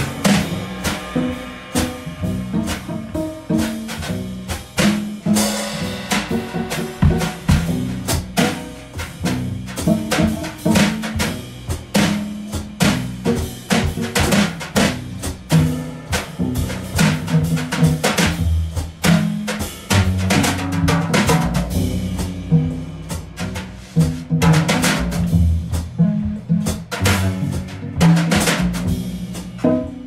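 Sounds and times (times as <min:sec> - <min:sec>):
bass line: 0:00.0 - 0:13.7, 0:19.8 - 0:30.0
drum kit beat: 0:00.0 - 0:30.0.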